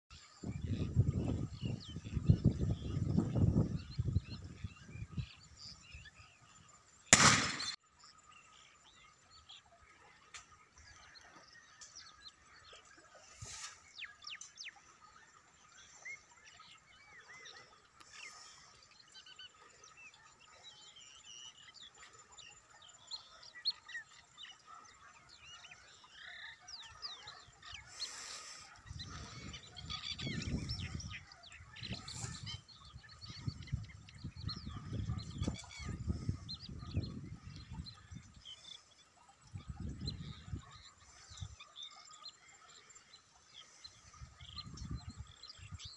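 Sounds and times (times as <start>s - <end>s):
birds chirping and whistling: 0.1s - 45.9s
sudden loud bang: 7.2s - 7.8s.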